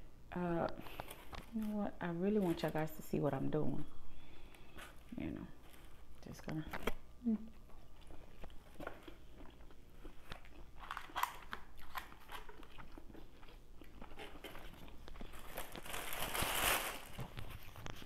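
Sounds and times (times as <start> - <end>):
chewing and crunching salad: 4.2 - 18.0
plastic bag rustling: 14.2 - 18.0.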